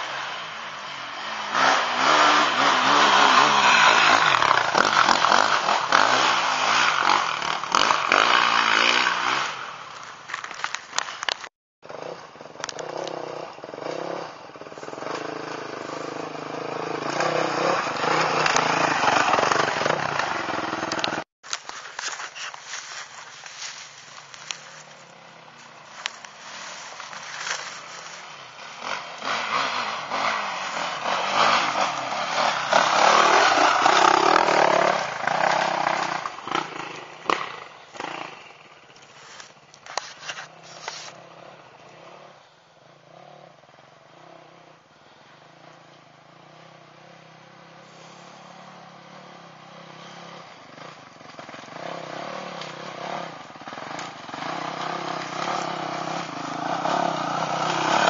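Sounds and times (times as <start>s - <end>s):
dirt bike engine revving: 0.0s - 10.7s, 11.8s - 58.0s.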